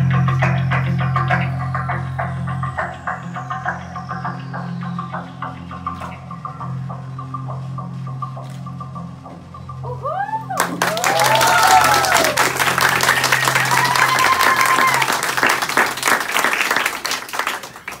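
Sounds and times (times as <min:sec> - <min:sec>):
low music notes: 0:00.0 - 0:18.0
whoops: 0:09.8 - 0:15.7
audience clapping and cheering: 0:10.5 - 0:18.0.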